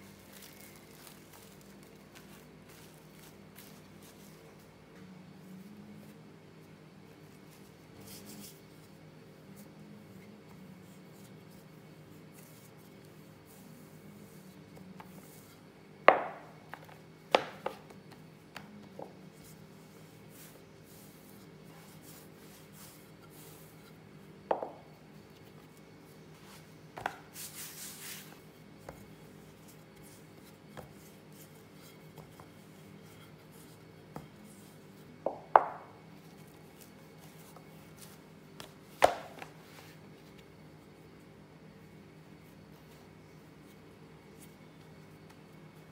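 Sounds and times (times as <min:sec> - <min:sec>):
rolling pin knocking on mat: 0:16.1 - 0:17.8, 0:24.5 - 0:24.8, 0:35.3 - 0:36.0
hand brushing flour off dough: 0:27.3 - 0:35.2.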